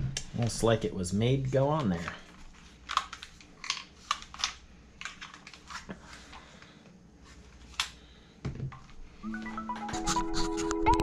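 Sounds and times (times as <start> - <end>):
electronic music tones: 9.2 - 11.0.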